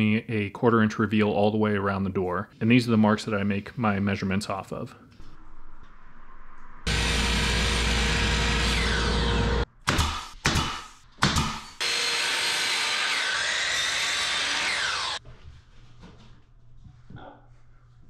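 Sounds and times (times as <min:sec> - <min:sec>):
miter saw motor running: 0:06.9 - 0:09.6, 0:11.8 - 0:15.2
sharp knocks: 0:09.8 - 0:11.7.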